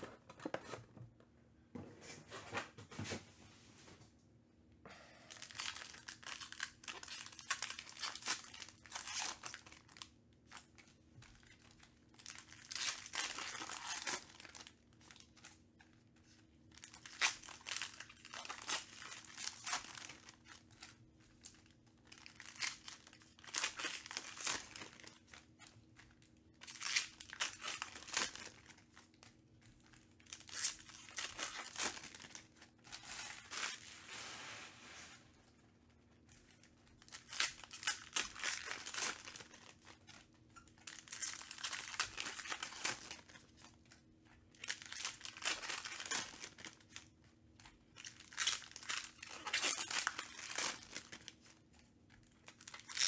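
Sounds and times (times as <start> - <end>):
foil wrappers tearing and crinkling: 5.4 - 10.7, 11.6 - 15.3, 16.8 - 25.6, 29.9 - 34.5, 37.0 - 43.7, 44.6 - 47.1, 48.0 - 51.6, 52.4 - 53.0.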